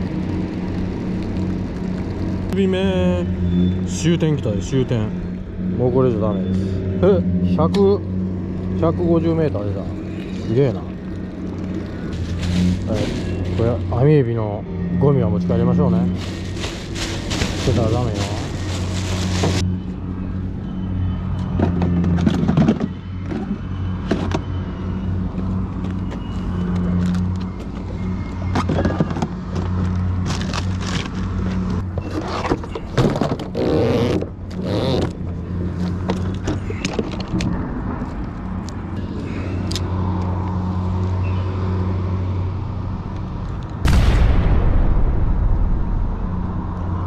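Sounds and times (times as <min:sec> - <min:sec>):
loud noise: 0:43.8 - 0:47.0
steady low hum: 0:43.9 - 0:47.0.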